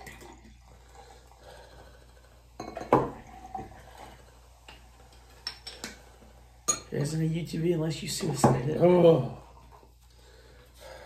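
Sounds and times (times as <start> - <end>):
liquid trickling into glass: 0.0 - 1.1
glass clink: 2.6 - 3.6, 6.7 - 7.0.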